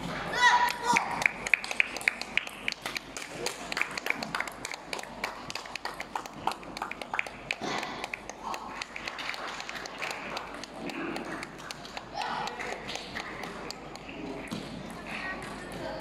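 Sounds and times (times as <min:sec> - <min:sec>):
faint voices: 0:09.9 - 0:16.0.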